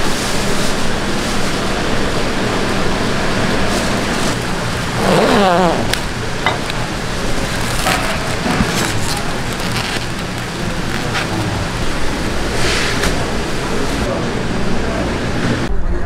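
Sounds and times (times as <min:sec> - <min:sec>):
cling film crinkling: 0:07.3 - 0:12.5.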